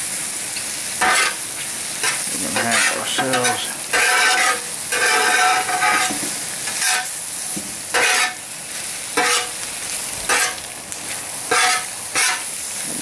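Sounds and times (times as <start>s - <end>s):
food frying sizzle: 0.0s - 13.0s
metal spatula scraping griddle: 1.0s - 1.4s, 2.0s - 7.2s, 7.9s - 8.5s, 9.1s - 9.6s, 10.2s - 12.9s.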